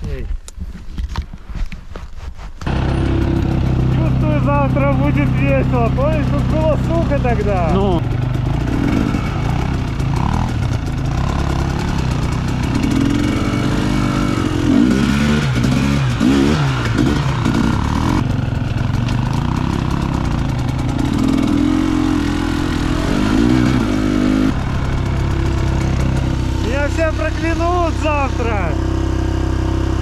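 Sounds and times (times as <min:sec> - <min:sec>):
motorcycle engines revving: 0:02.6 - 0:30.0.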